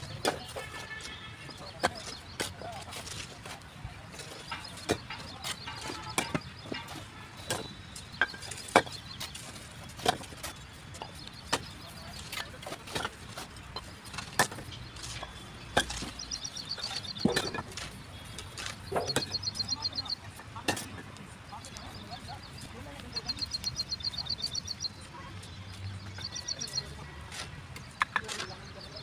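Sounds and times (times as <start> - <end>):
bricks knocking together: 11.0 - 20.0.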